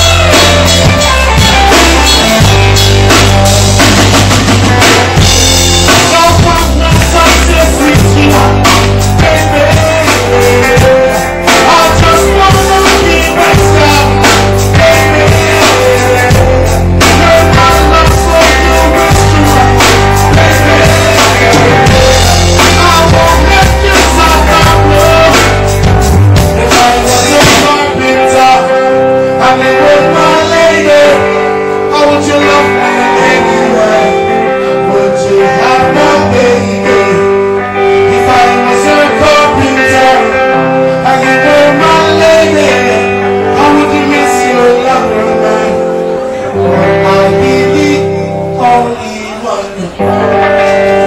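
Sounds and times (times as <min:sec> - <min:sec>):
deep bass line: 0:00.0 - 0:37.1
live reggae band: 0:00.0 - 0:51.0
person singing: 0:04.6 - 0:51.0.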